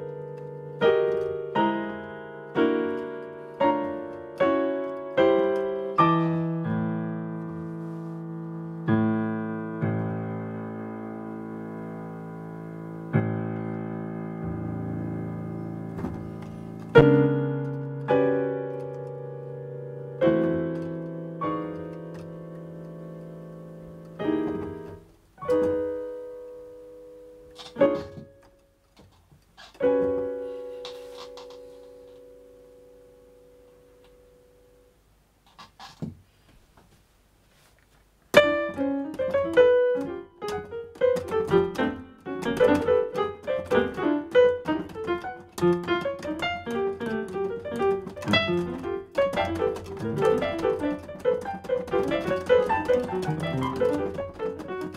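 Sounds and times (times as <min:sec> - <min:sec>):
digital piano playing: 0:00.0 - 0:28.8, 0:29.7 - 0:35.0, 0:38.3 - 0:54.9.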